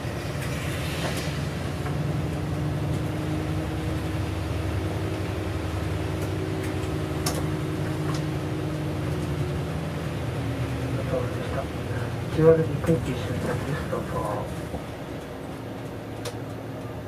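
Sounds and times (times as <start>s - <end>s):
bus engine drone: 0.0s - 17.0s.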